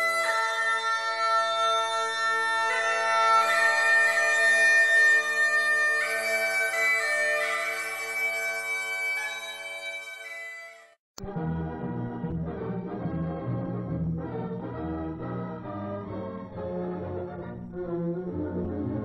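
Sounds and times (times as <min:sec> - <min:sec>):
bagpipes playing slow melody: 0:00.0 - 0:10.9.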